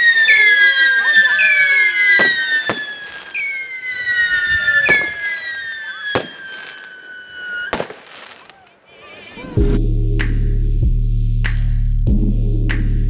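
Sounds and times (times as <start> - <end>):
firework crackling: 0.0 - 8.8
rockets bursting with bangs: 0.0 - 8.8
siren rockets whistling: 0.0 - 8.8.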